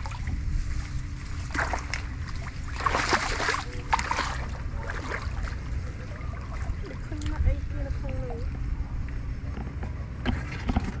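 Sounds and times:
steady low rumble: 0.0 - 11.0
water splashing and sloshing: 0.0 - 11.0.

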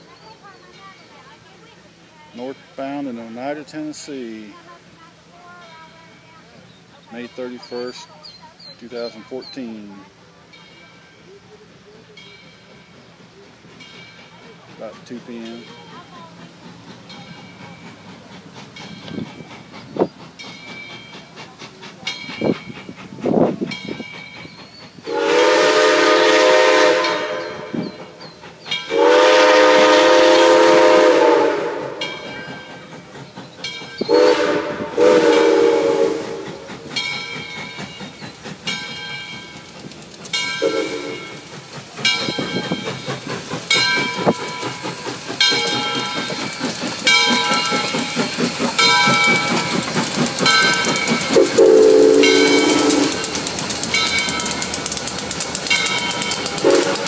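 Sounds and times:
locomotive exhaust beats: 4.8 - 57.0
steam whistle blasts: 25.0 - 27.8, 28.9 - 32.0, 34.1 - 36.6, 40.6 - 41.2, 51.3 - 53.3, 56.6 - 57.0.

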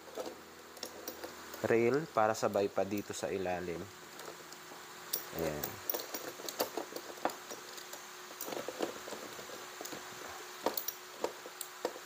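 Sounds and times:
metal parts clicking and tapping: 0.0 - 1.7, 4.1 - 10.0, 10.6 - 12.0
faint steady hum: 0.0 - 12.0.

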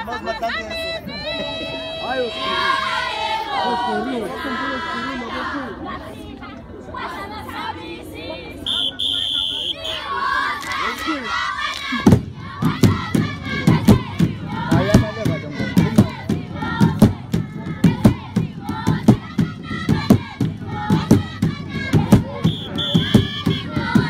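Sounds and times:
group singing and chanting: 0.0 - 24.0
steady drum beat: 12.0 - 24.0.

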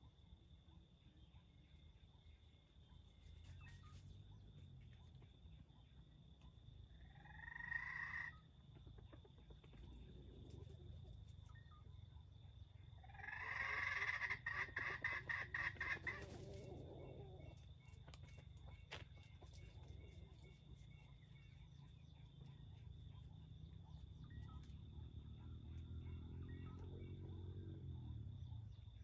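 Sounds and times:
chicken clucking: 7.2 - 11.5, 13.0 - 24.7.

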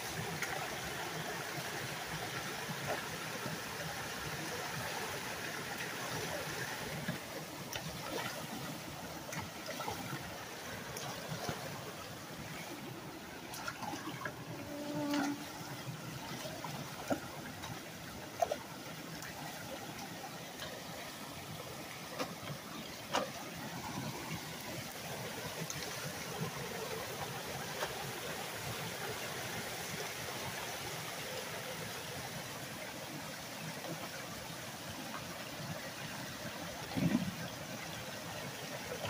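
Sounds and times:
water running into a culvert: 0.0 - 39.0
sharp knocks and splashes: 13.5 - 14.4, 22.0 - 24.4.

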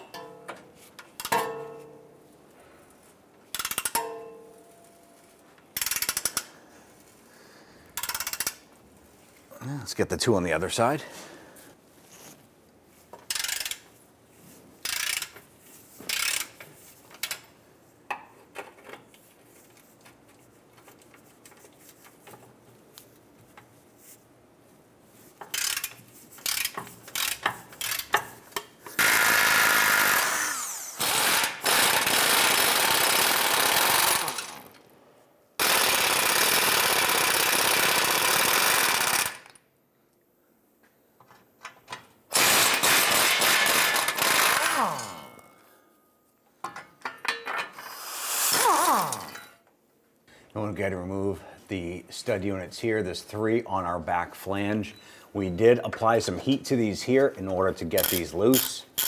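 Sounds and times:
hand ratchet clicking: 1.1 - 1.4, 3.5 - 4.0, 5.8 - 6.5, 8.0 - 8.6, 13.2 - 13.8, 14.8 - 15.4, 16.1 - 16.6, 17.2 - 17.4, 25.4 - 29.3, 35.6 - 39.6, 42.4 - 45.1, 58.0 - 59.0
pneumatic air ratchet running: 3.5 - 4.0, 5.8 - 6.5, 8.0 - 8.6, 13.3 - 13.8, 14.8 - 15.4, 16.1 - 16.6, 25.5 - 28.2, 28.9 - 34.7, 35.6 - 39.5, 42.3 - 45.1, 47.8 - 49.3.

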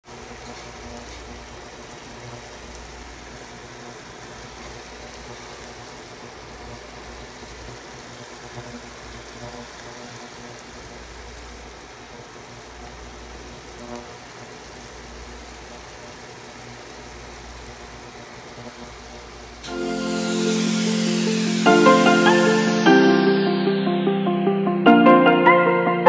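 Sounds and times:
water simmering in a pan: 0.1 - 20.6.

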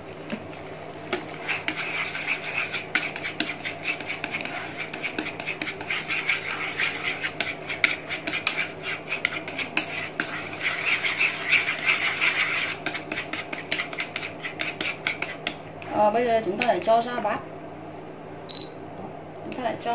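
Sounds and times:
utensil scraping frying pan: 0.0 - 15.6
sauce sizzling: 0.0 - 15.7.

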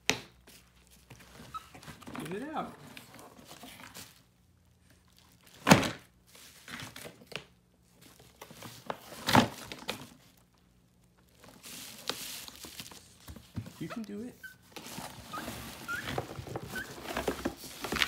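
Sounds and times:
bubble wrap crinkling: 3.8 - 7.1, 7.8 - 18.0.

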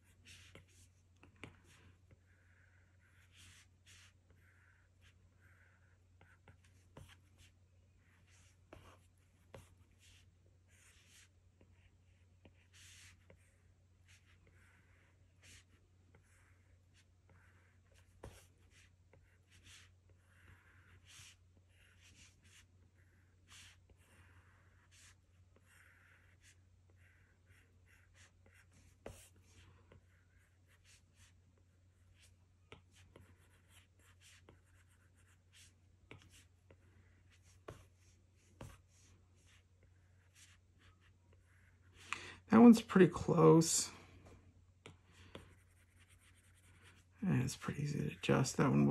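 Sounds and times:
stylus scratching on glass screen: 45.4 - 48.9.

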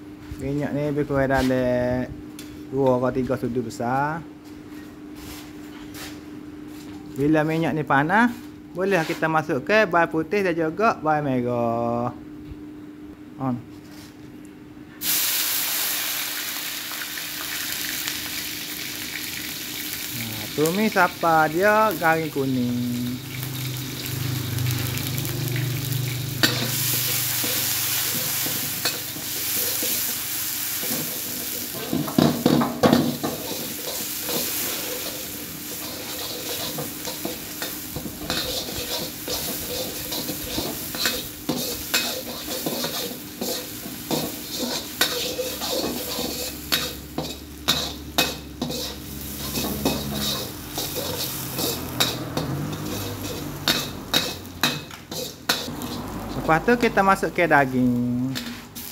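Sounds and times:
garlic sizzling in hot oil: 15.0 - 58.9
metal ladle scraping and clinking: 33.3 - 56.5.

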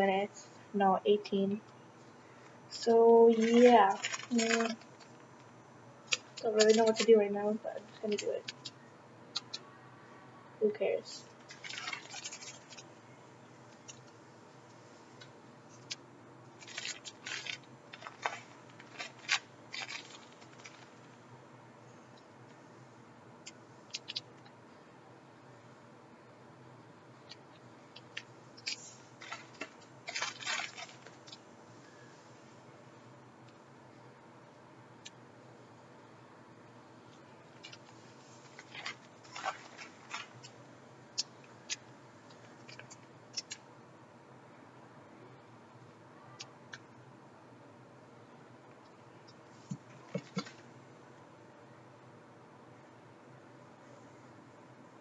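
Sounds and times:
plastic bags crinkling: 3.3 - 5.2, 11.4 - 12.9, 16.6 - 21.1, 28.6 - 31.4, 37.6 - 40.6
plastic packet rustling: 3.3 - 5.2, 11.3 - 12.9, 16.6 - 21.2, 28.6 - 31.4, 37.6 - 40.6.

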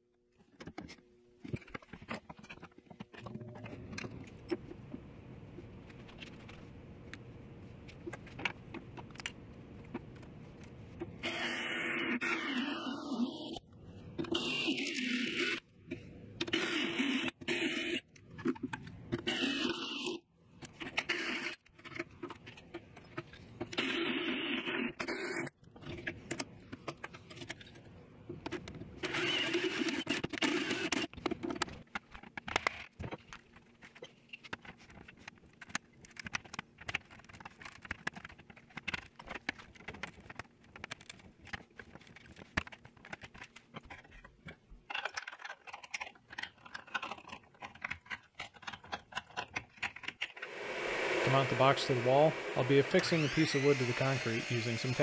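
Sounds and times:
cordless drill cutting plastic: 29.0 - 31.2, 50.4 - 55.0
plastic case clicks and scrapes: 30.0 - 50.4.

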